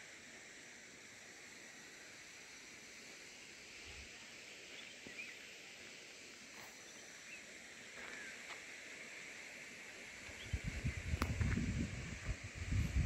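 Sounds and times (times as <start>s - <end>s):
steady hiss: 0.0s - 13.0s
faint bird chirps: 4.7s - 5.6s, 6.8s - 8.5s.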